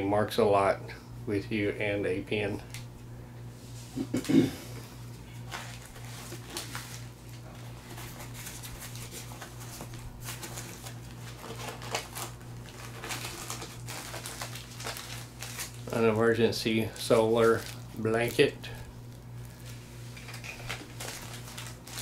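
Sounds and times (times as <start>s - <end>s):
steady low hum: 0.0s - 22.0s
plastic packaging rustling: 5.3s - 22.0s.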